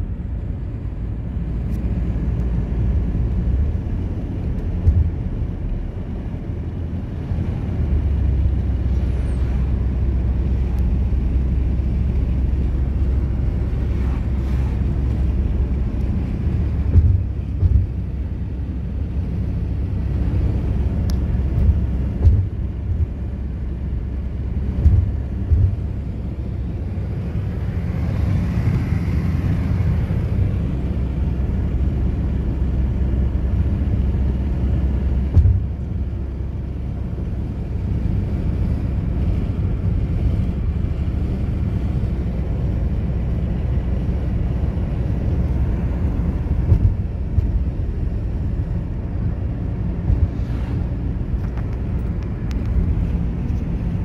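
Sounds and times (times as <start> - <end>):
car cabin road rumble: 0.0 - 54.0
soft thumps: 16.9 - 18.0, 21.6 - 23.2, 24.8 - 25.9, 35.3 - 35.7, 46.6 - 47.6.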